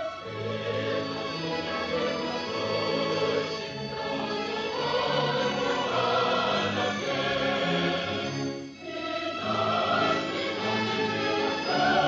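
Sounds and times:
orchestral music with choir: 0.0s - 12.0s.

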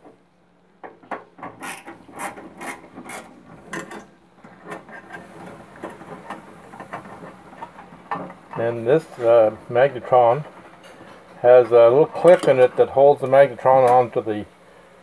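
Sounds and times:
screwdriver scraping and rubbing: 1.4s - 8.3s.

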